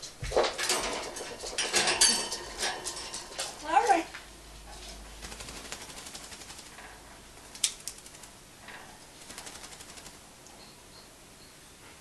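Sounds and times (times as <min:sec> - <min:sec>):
parrot clicking: 0:07.5 - 0:08.3.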